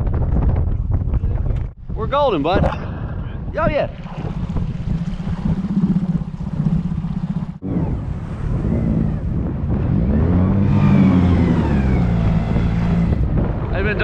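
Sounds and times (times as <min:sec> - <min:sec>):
wind blowing on microphone: 0:00.0 - 0:14.0
outboard motor running: 0:04.0 - 0:09.3.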